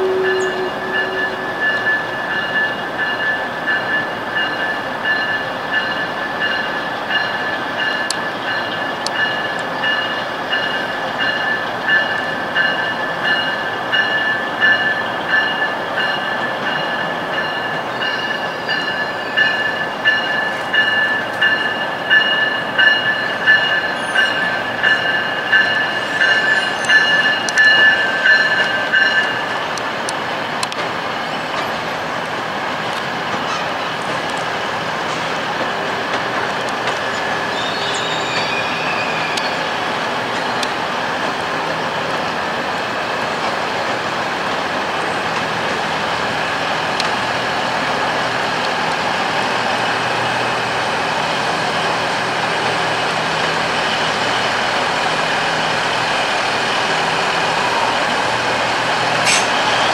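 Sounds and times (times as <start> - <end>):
train wheels squealing: 0.0 - 29.5, 37.0 - 40.6, 59.2 - 59.9
rail clicks: 0.0 - 59.9
train rumble: 0.0 - 59.9.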